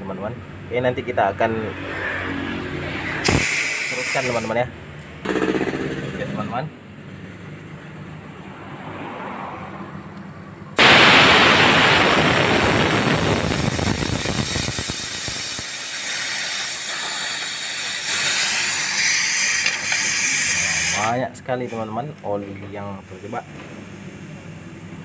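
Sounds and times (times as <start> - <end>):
gas hissing from pipe: 3.2 - 4.6, 10.8 - 21.9.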